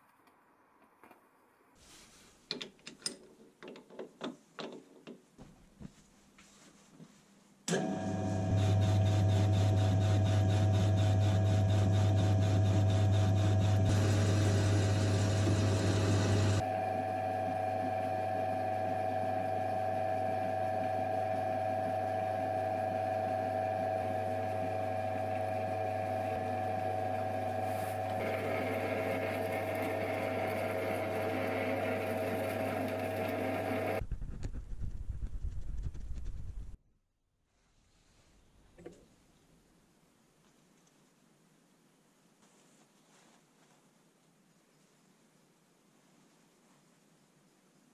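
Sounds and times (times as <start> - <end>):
lathe motor hum with whine: 7.7 - 34.0.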